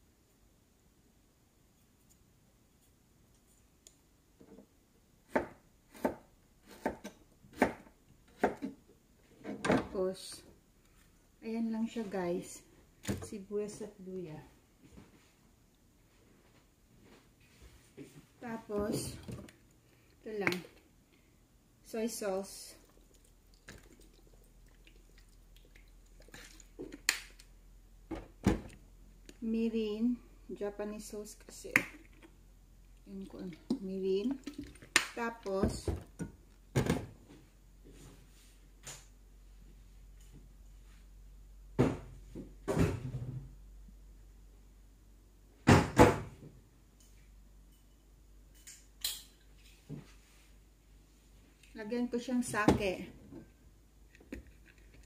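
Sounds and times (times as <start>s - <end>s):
knife chopping on cutting board: 5.3s - 8.7s.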